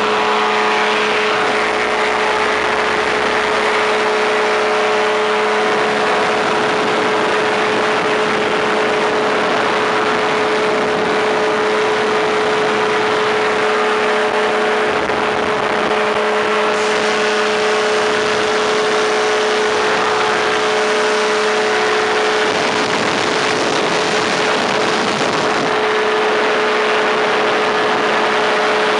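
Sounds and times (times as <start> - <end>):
engine and propeller drone: 0.0 - 28.9.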